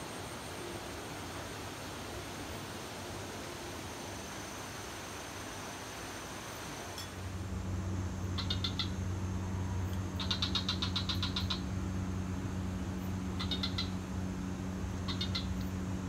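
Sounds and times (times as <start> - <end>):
steady low hum: 0.0 - 16.0
high chirping animal call: 8.4 - 9.0, 10.2 - 11.7, 13.3 - 14.0, 15.0 - 15.7.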